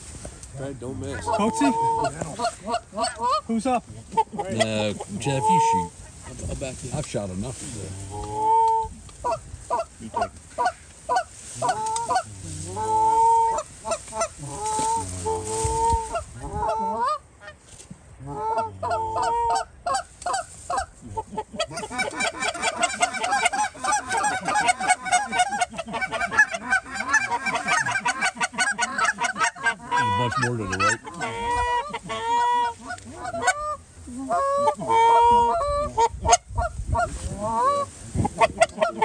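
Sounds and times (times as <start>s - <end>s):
geese honking: 0.8s - 6.8s, 8.0s - 17.6s, 18.2s - 39.0s
flock of geese honking together: 1.0s - 6.8s, 8.1s - 17.6s, 18.2s - 39.0s.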